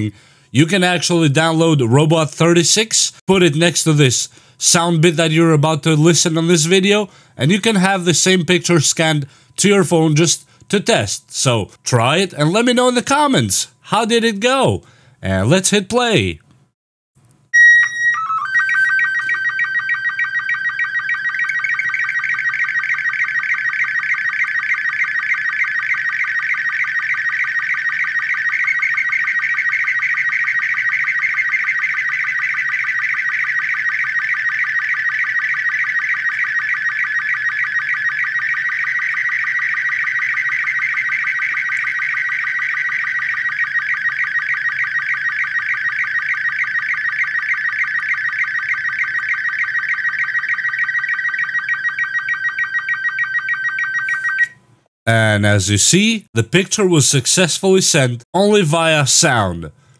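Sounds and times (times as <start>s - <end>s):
steady beeps: 17.6s - 54.6s
warbling chirping signal tone: 17.6s - 54.6s.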